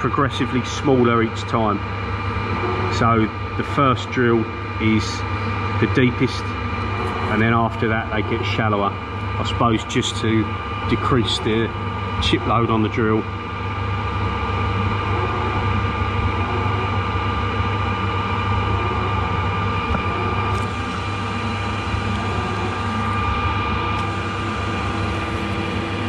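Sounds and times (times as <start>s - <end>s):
constant whine tones: 0.0s - 26.0s
lathe spindle humming: 0.0s - 26.0s
coolant spraying: 20.1s - 26.0s.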